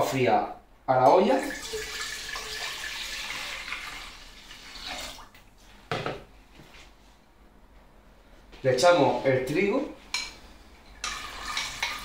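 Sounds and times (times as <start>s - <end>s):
water pouring into a pot: 1.4s - 5.3s, 11.0s - 12.0s.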